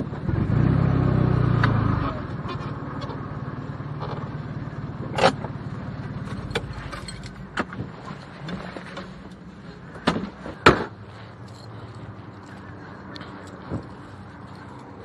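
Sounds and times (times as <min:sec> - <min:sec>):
sharp clicks and clunks: 0:06.2 - 0:11.0.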